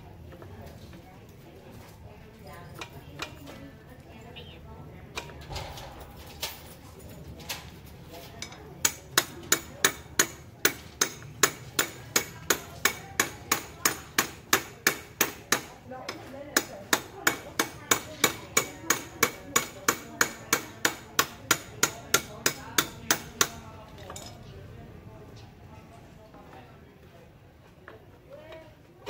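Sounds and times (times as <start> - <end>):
hammer striking metal: 8.8 - 15.8.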